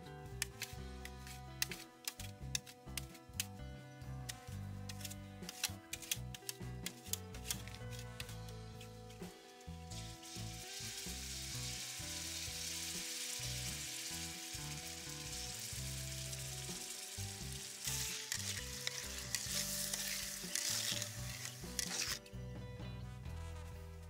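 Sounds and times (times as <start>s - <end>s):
sauce sizzling in a wok: 9.5s - 22.2s
ladle scraping and clinking pan: 17.8s - 22.2s.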